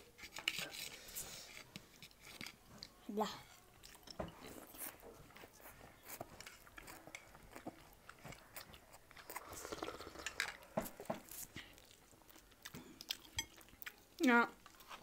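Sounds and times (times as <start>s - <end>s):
chewing: 0.2s - 15.0s
slurping noodles and soup: 9.2s - 10.7s.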